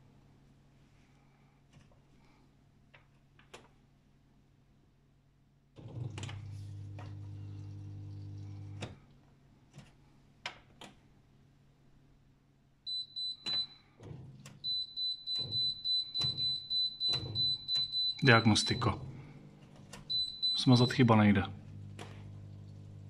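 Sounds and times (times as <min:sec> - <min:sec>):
washing machine pump humming: 0:05.8 - 0:09.0, 0:12.9 - 0:23.0
high alarm beeps: 0:12.9 - 0:13.8, 0:14.6 - 0:19.0, 0:20.1 - 0:21.2.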